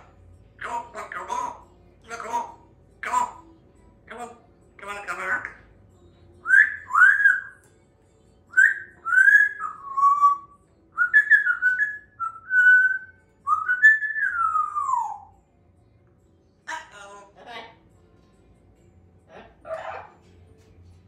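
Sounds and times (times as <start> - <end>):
parrot whistling: 6.4 - 7.6, 8.5 - 15.4, 19.4 - 20.2.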